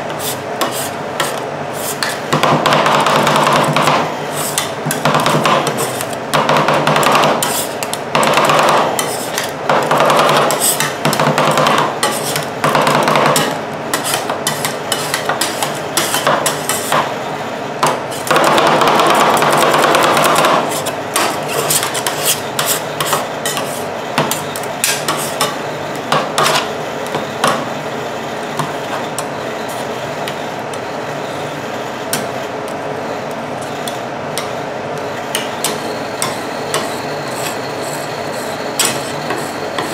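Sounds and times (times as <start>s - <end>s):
spatulas scraping ice cream: 0.1s - 2.2s, 4.3s - 5.0s, 5.6s - 6.2s, 7.4s - 8.0s, 9.0s - 11.0s, 11.7s - 12.5s, 13.2s - 17.1s, 20.3s - 25.6s, 35.2s - 39.9s.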